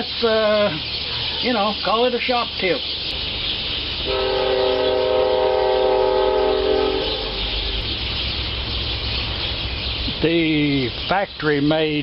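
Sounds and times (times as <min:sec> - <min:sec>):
train air horn blast: 0:04.1 - 0:07.6.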